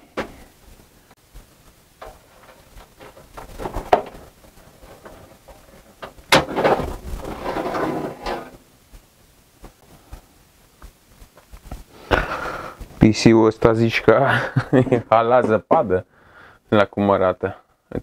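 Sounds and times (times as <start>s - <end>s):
drive scraping on metal cage: 6.3s - 8.6s.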